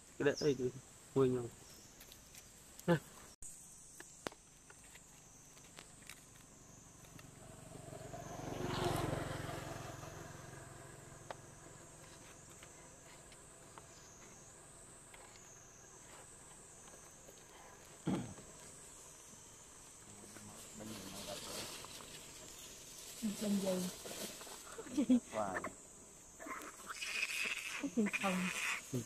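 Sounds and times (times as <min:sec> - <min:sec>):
high insect drone: 0:00.0 - 0:29.0
vehicle passing by: 0:07.2 - 0:12.7.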